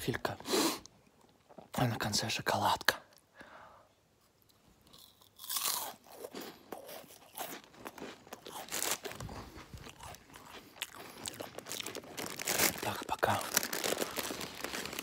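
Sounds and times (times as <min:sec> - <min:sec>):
wafer roll crunching: 0:08.6 - 0:15.0.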